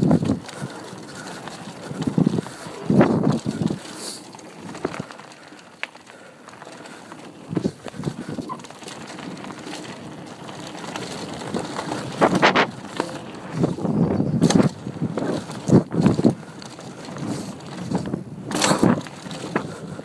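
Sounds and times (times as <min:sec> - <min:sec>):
bike knocks and rattles: 0:00.0 - 0:05.2, 0:07.4 - 0:20.0
tyres rolling on dirt: 0:00.0 - 0:20.0.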